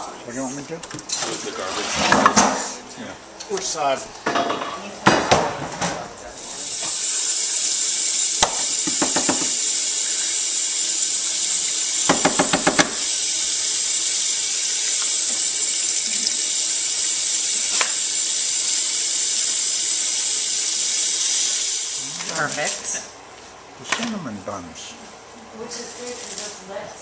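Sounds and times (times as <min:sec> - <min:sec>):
faucet running into steel sink: 0:06.5 - 0:22.6.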